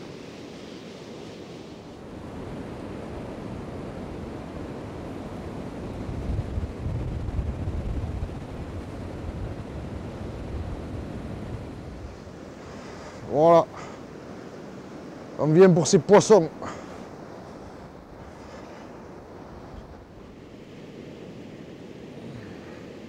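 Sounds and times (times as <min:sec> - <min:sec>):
surf washing onto sand: 0:00.0 - 0:23.0.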